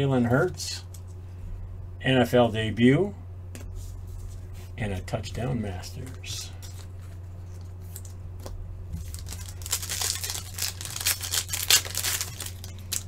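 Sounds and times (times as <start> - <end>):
low electrical hum: 0.0 - 13.0
plastic wrapper tearing and crinkling: 9.0 - 13.0.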